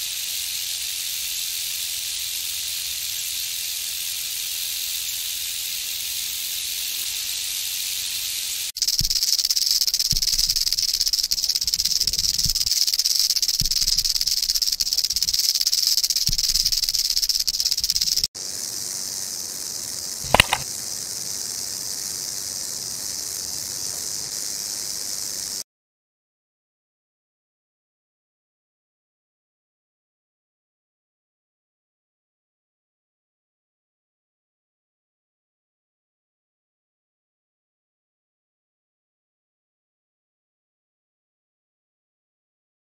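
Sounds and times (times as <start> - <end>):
rattlesnake rattling: 0.0 - 25.6.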